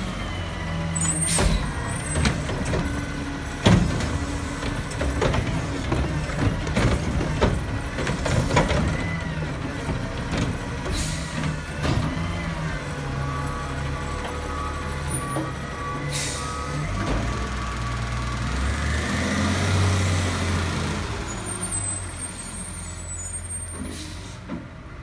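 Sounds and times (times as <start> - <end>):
air brake hisses: 23.8 - 24.4.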